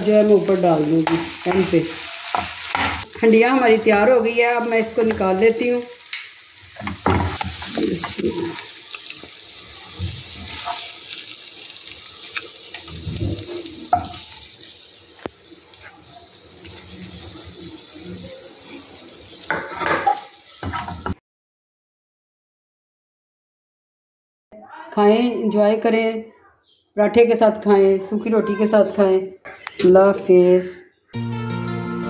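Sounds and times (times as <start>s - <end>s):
meat sizzling in hot oil: 0.0s - 21.2s
metal spatula scraping a pan: 9.8s - 11.2s, 19.5s - 21.2s.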